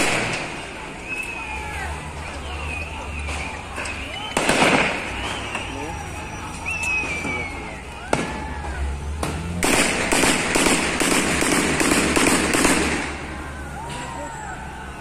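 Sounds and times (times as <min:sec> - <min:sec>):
gunshots echoing: 0:04.4 - 0:05.4, 0:09.6 - 0:13.3
rapid gunfire: 0:09.6 - 0:13.3.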